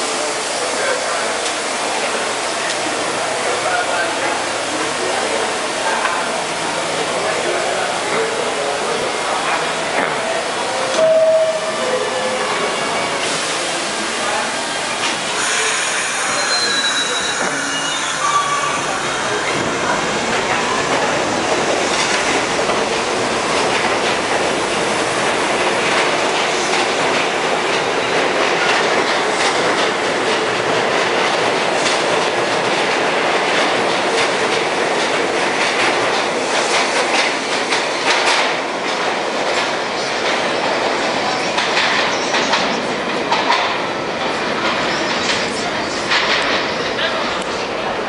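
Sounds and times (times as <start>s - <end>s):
subway train rumble and clatter: 0.0s - 48.0s
wheel squeal: 15.4s - 18.9s.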